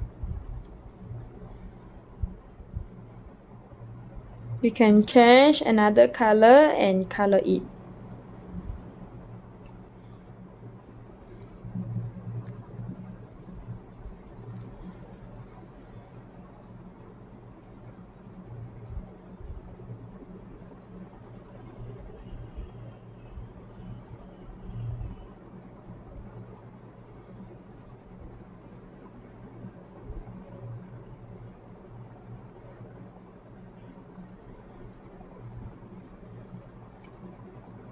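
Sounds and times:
pencil scratching on paper: 0.0s - 2.0s, 12.0s - 24.1s, 26.2s - 31.2s, 36.0s - 37.8s
low background hum: 0.0s - 37.9s.

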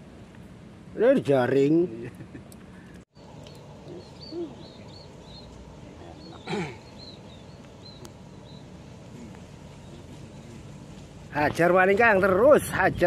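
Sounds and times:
small birds chirping: 2.1s - 12.3s.

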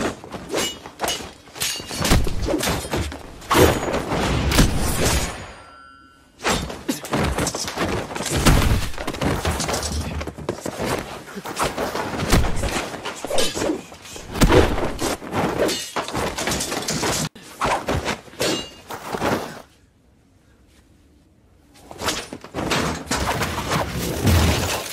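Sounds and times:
sword fight hits and blade impacts: 0.0s - 5.8s, 12.2s - 17.3s
sword swishes: 9.6s - 19.6s.

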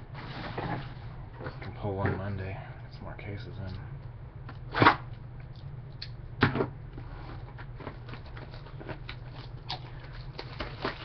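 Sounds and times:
steady low hum: 0.0s - 11.0s
cardboard and plastic wrapper crackling: 7.4s - 11.0s.

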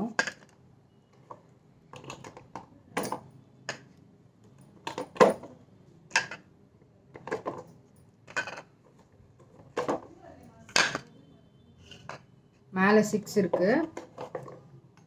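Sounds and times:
glass jars clinking: 10.7s - 11.1s.

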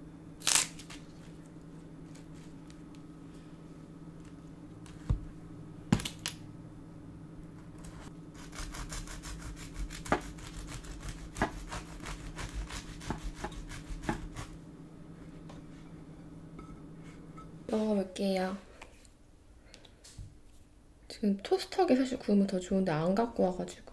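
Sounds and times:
knife sawing through bread: 8.4s - 14.5s.

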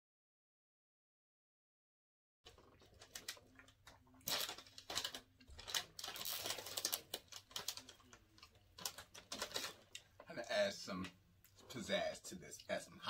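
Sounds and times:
close chewing and mouth clicks: 2.5s - 10.3s
foil chip bag crinkling: 2.5s - 10.3s.

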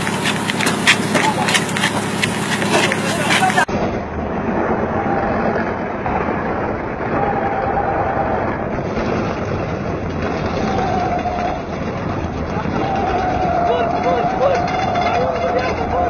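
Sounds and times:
vehicle driving hum: 0.0s - 16.0s
wind and road noise: 0.0s - 16.0s.

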